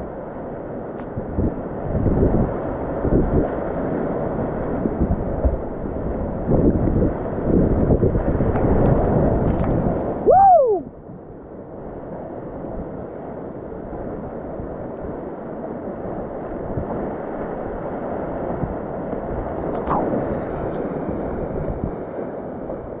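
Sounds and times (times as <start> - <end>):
wind buffeting microphone: 0.0 - 23.0
river whitewater rushing: 19.6 - 21.6
brief rising and falling pitched sound: 19.8 - 20.2.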